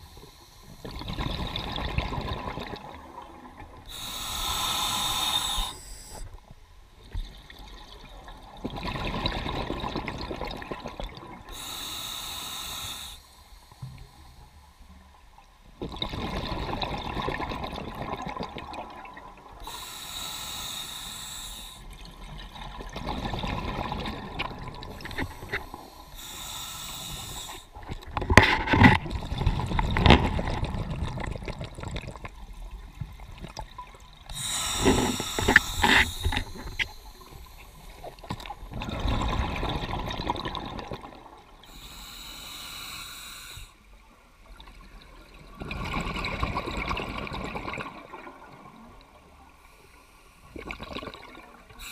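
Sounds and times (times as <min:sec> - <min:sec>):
regulator hissing inhale: 0:00.0 - 0:01.1, 0:03.8 - 0:06.4, 0:11.5 - 0:14.7, 0:19.6 - 0:22.0, 0:24.9 - 0:27.8, 0:34.3 - 0:38.8, 0:41.6 - 0:43.9
exhaled bubbles rumbling: 0:00.9 - 0:03.8, 0:07.1 - 0:11.5, 0:15.8 - 0:19.6, 0:22.0 - 0:26.0, 0:27.7 - 0:41.5, 0:44.6 - 0:48.8.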